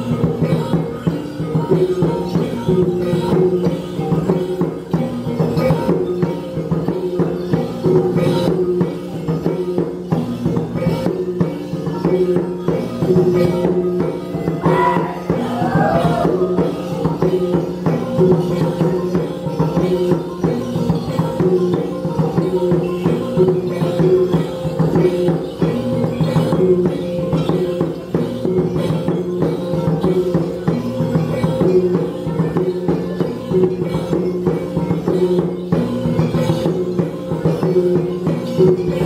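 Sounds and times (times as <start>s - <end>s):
drum beats: 0.0s - 39.0s
jingling percussion: 0.0s - 39.0s
wavering call: 13.6s - 17.8s.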